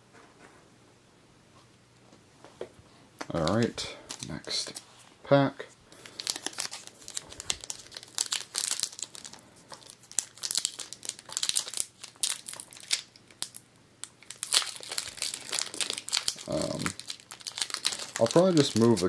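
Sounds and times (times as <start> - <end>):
foil wrapper crinkling and tearing: 3.4 - 4.8, 5.9 - 19.0.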